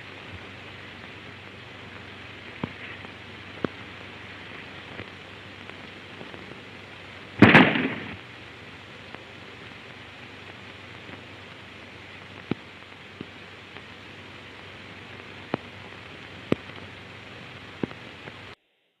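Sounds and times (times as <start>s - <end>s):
old recording hiss: 0.0s - 19.0s
gunshot crack: 7.4s - 8.2s.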